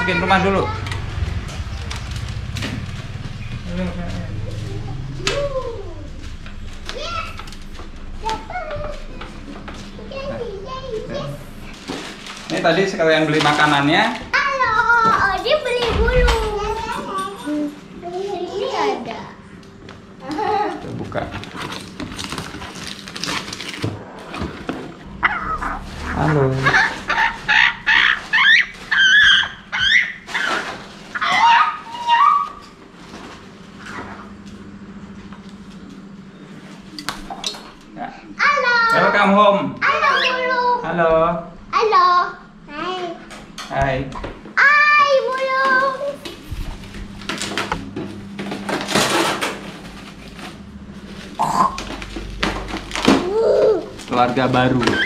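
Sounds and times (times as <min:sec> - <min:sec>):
plastic rustling: 0:11.7 - 0:14.3, 0:20.6 - 0:33.9, 0:46.5 - 0:55.0
parrot squawking and whistling: 0:25.1 - 0:32.7.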